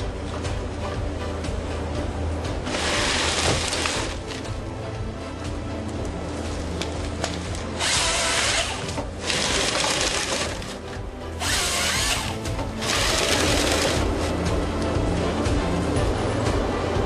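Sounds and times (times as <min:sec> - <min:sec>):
chainsaw cutting through log: 0:02.7 - 0:04.4, 0:07.8 - 0:10.7, 0:11.4 - 0:14.1
machine engine running: 0:07.8 - 0:17.0.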